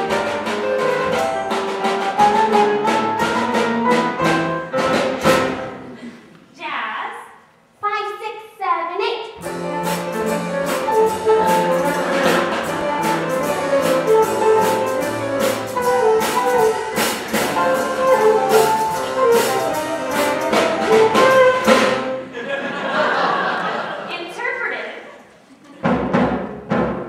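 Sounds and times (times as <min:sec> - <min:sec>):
upbeat instrumental music: 0:00.0 - 0:06.0, 0:09.4 - 0:22.9
brass: 0:09.5 - 0:22.2.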